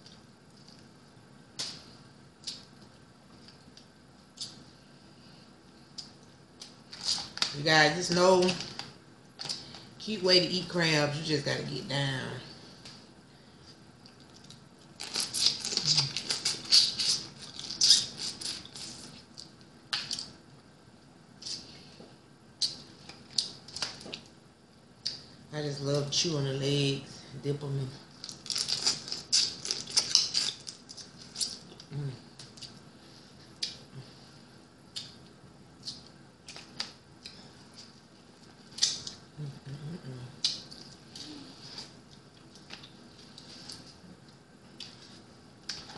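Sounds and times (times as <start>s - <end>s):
low hum of voice: 31.9s - 32.3s, 39.4s - 40.5s.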